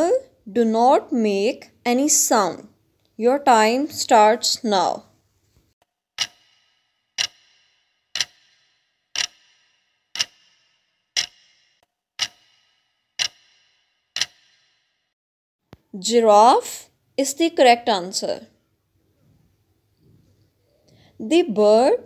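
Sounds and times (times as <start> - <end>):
clock-like ticks with ringing tail: 6.2 - 15.2.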